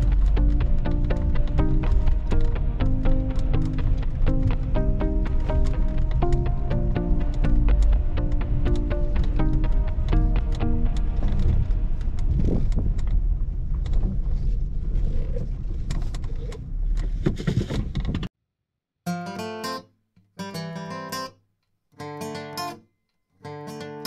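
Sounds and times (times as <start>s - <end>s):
acoustic guitar strumming: 0.0s - 11.2s
musical tones: 0.0s - 12.0s
low rumbling noise: 0.0s - 18.2s.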